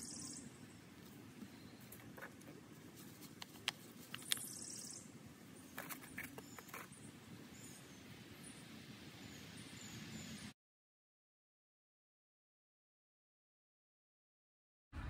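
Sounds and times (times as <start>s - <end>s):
faint high bird chirps: 0.0s - 2.1s, 4.2s - 10.5s
plastic pots clicking and tapping: 1.9s - 4.4s.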